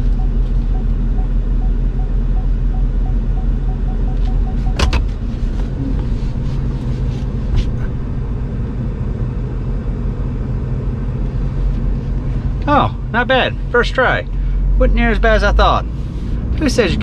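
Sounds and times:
parking sensor warning beeps: 0:00.0 - 0:05.0
truck engine rumbling: 0:00.0 - 0:17.0
gear shift click: 0:04.2 - 0:06.4.

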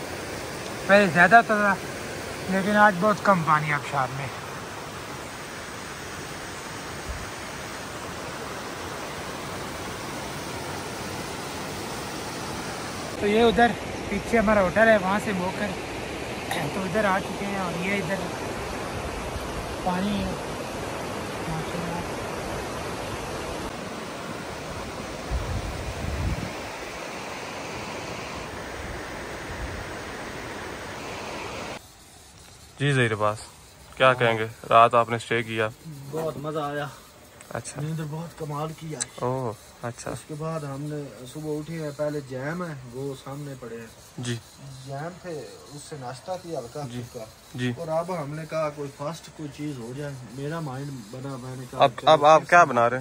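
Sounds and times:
waterfall rushing: 0:00.0 - 0:31.8.

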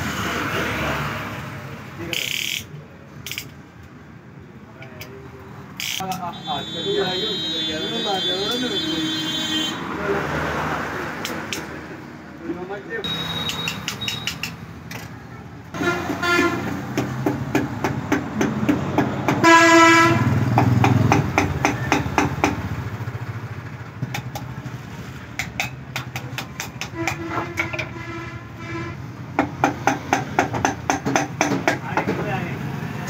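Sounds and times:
hammer tapping metal: 0:13.3 - 0:15.1, 0:16.8 - 0:19.5, 0:20.5 - 0:22.6, 0:25.3 - 0:28.0, 0:29.4 - 0:32.2
horn: 0:19.4 - 0:20.3.

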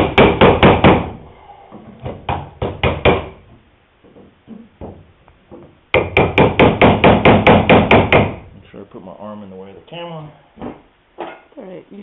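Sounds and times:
mallet striking chisel into wood: 0:00.0 - 0:01.1, 0:05.9 - 0:08.4.

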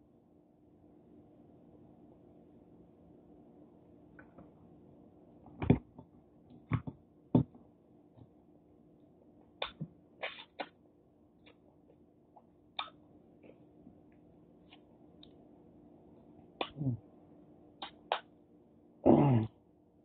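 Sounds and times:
eating smacks and clicks: 0:12.4 - 0:13.6.

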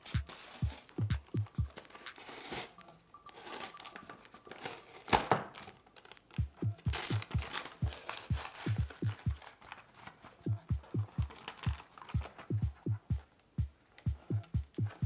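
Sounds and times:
music with deep kick drum: 0:00.0 - 0:01.9, 0:06.4 - 0:09.5, 0:10.4 - 0:15.0.

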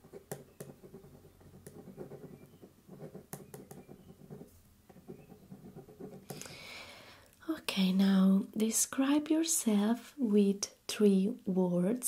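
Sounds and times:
pen writing on paper: 0:00.0 - 0:06.4.

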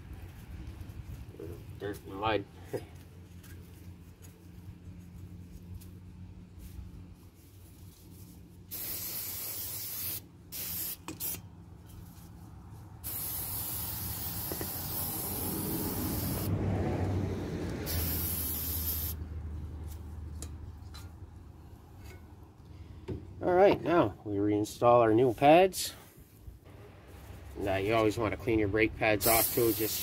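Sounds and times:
aerosol spray hissing: 0:08.7 - 0:11.4, 0:13.0 - 0:16.6, 0:17.8 - 0:19.2, 0:29.2 - 0:30.0.

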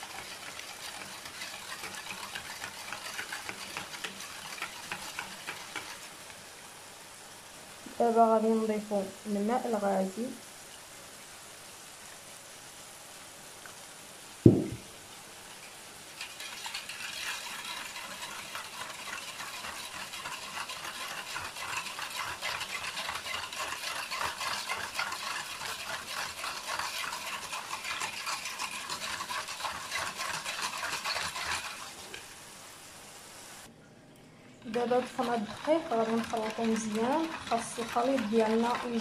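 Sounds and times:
whisk rattling in plastic bowl: 0:00.0 - 0:06.1, 0:16.2 - 0:31.9, 0:34.7 - 0:39.0
thump: 0:14.4 - 0:14.9.

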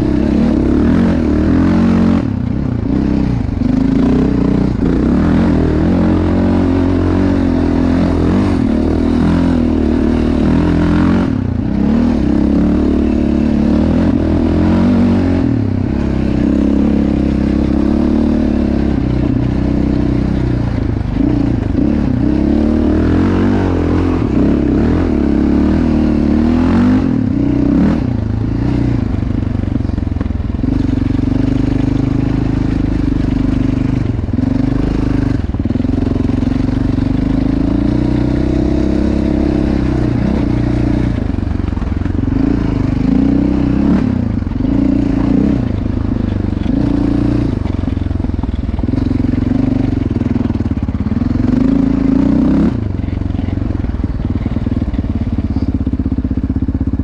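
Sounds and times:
quad bike engine revving: 0:00.0 - 0:57.0.

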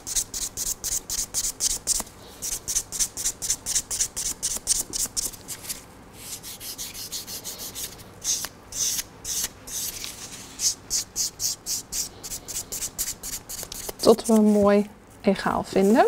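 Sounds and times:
file buffing a nail: 0:00.0 - 0:05.2, 0:06.4 - 0:10.0, 0:10.7 - 0:14.4.

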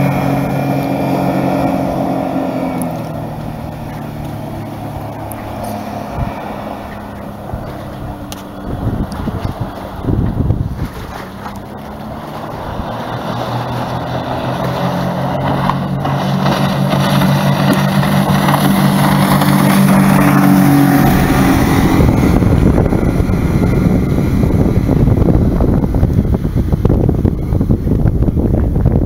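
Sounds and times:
outboard motor running: 0:00.0 - 0:29.0
wake water splashing: 0:00.0 - 0:29.0
wind rushing on microphone: 0:00.0 - 0:29.0.

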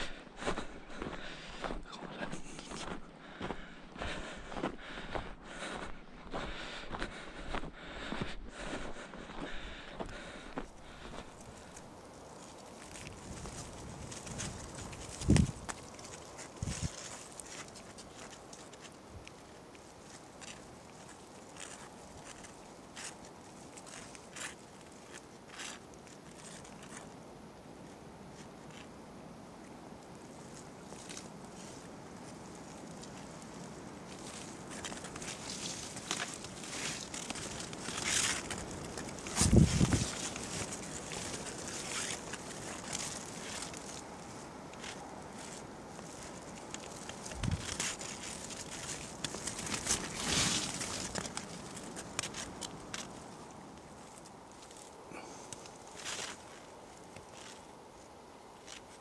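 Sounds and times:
faint steady hiss: 0:09.6 - 0:59.0
faint rustling: 0:30.3 - 0:57.7.

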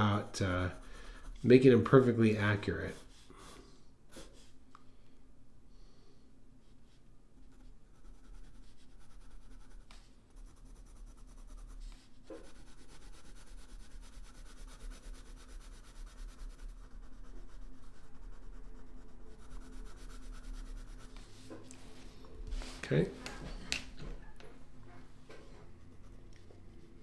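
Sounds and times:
pencil shading on paper: 0:00.0 - 0:01.5, 0:07.5 - 0:21.3, 0:25.6 - 0:26.3.

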